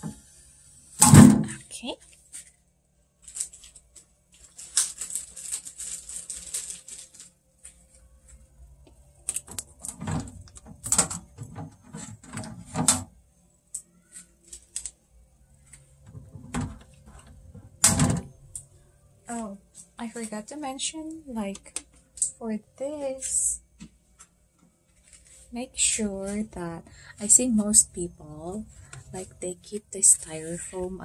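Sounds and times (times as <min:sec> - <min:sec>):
tape peeling off plastic: 0:03.2 - 0:07.8
plastic parts clicking and knocking: 0:09.2 - 0:13.1.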